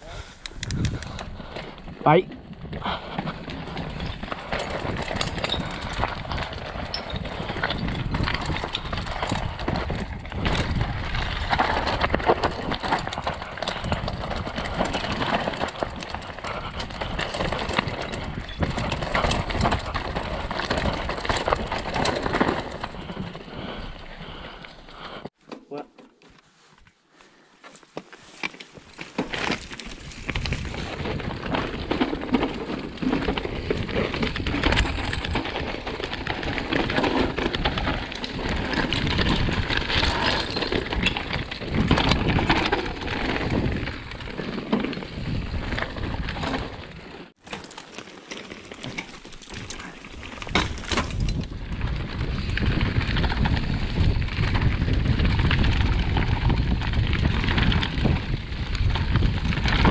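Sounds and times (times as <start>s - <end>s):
bike rattling over bumps: 0.0s - 25.3s, 28.3s - 59.9s.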